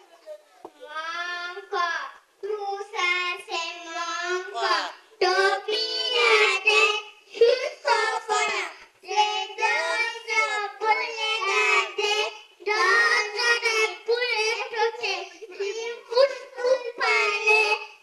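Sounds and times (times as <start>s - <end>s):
girl singing into microphone: 2.4s - 18.0s.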